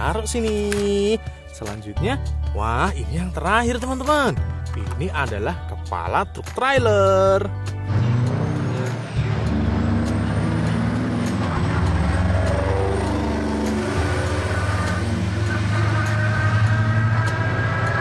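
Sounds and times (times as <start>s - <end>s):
truck diesel engines accelerating: 7.4s - 18.0s.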